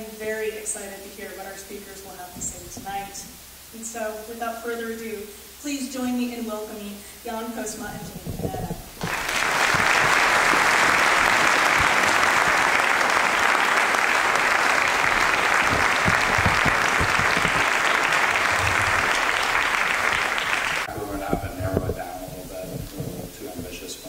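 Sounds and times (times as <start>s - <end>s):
audience applauding: 9.0s - 22.5s.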